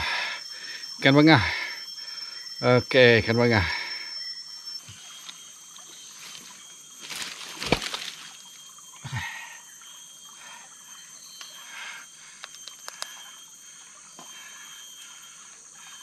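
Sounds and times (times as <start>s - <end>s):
high insect hum: 0.0s - 16.0s
sharp clicks: 12.4s - 13.2s.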